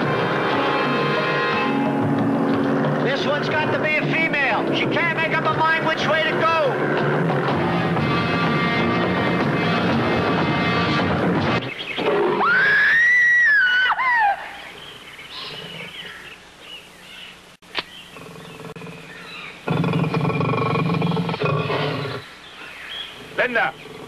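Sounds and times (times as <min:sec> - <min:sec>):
music: 0:00.0 - 0:11.7
faint jungle calls: 0:11.8 - 0:24.0
shrill animal call: 0:12.2 - 0:14.7
sharp click: 0:17.7 - 0:17.9.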